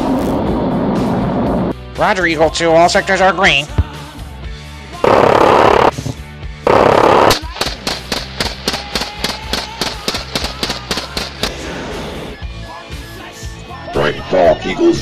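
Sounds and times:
background music: 1.7 - 15.0
autocannon fire bursts: 5.0 - 6.0, 6.7 - 11.5
rapid rifle shots: 5.0 - 6.0, 6.7 - 11.6.

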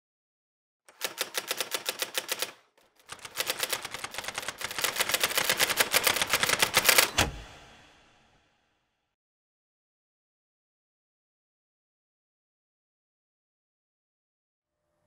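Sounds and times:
typewriter keys striking: 0.9 - 7.3.

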